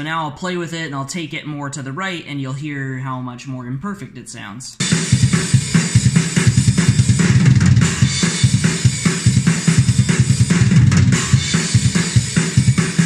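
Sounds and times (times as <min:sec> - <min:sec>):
rapid bass drum hits: 0:04.8 - 0:13.0
snare drum: 0:04.8 - 0:13.0.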